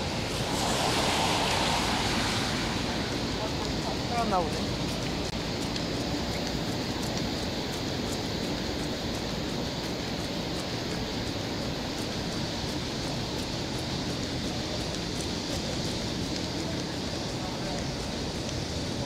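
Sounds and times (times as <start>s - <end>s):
city traffic rushing: 0.0s - 19.0s.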